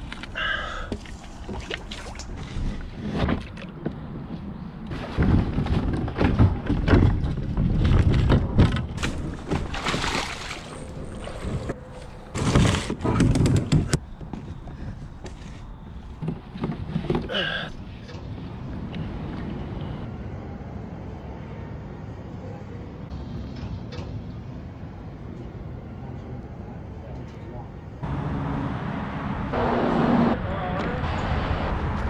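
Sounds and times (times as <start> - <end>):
water sloshing: 1.0 - 3.8, 9.0 - 13.0
kayak hull and paddle thunks: 4.9 - 14.7
wading splashes in shallow water: 9.0 - 12.2.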